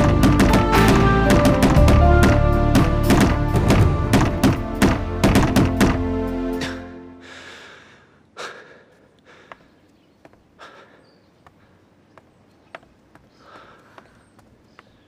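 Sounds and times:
wooden knocks on training dummy: 0.0 - 6.0
music: 0.0 - 7.4
forceful breaths: 6.6 - 12.0, 13.2 - 15.0.

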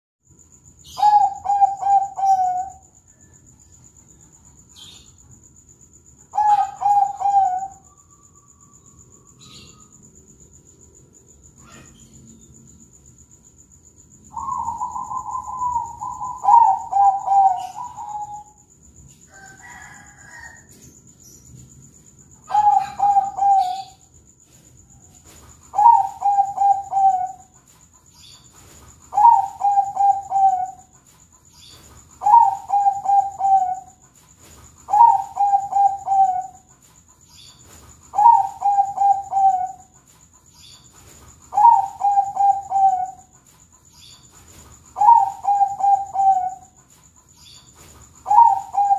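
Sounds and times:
dove cooing song: 0.8 - 3.3, 6.3 - 8.1, 14.3 - 18.6, 22.4 - 24.1, 25.6 - 27.6, 29.0 - 31.0, 31.7 - 34.0, 34.8 - 36.7, 38.1 - 40.0, 41.5 - 43.4, 44.8 - 46.8, 47.8 - 48.9.

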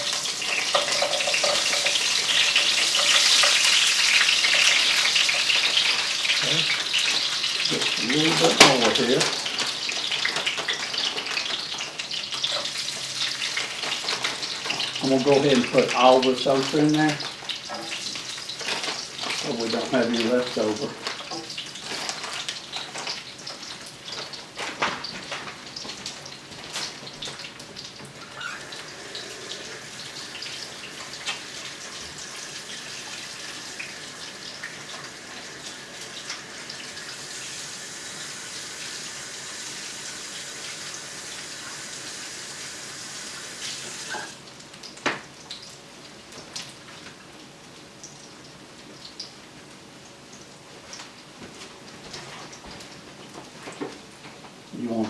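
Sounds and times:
sink tap running: 0.0 - 11.3, 27.4 - 44.4
okra frying in hot oil: 0.0 - 55.0.

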